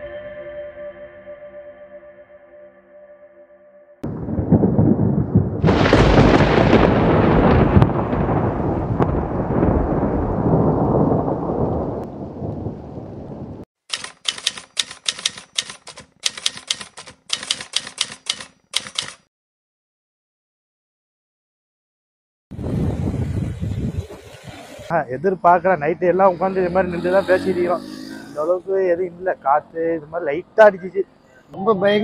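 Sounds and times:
thunder crack and rumble: 4.0s - 13.6s, 22.5s - 24.2s
typewriter keys clacking: 13.9s - 19.2s.

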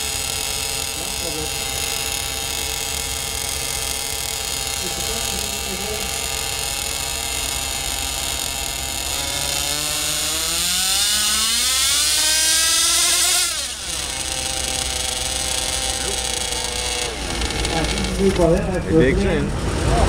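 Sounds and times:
small engine idling and revving: 0.0s - 20.0s.

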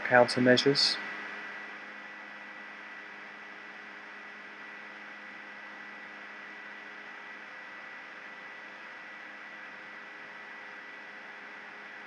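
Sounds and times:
electrical hum and hiss: 0.0s - 12.0s
faint high whine: 0.0s - 12.0s.

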